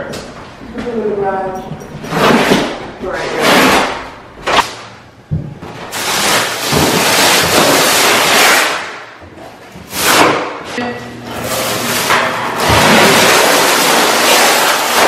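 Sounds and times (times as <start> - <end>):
wallpaper tearing: 2.1 - 4.9, 5.8 - 9.2, 9.8 - 10.6, 11.4 - 15.0.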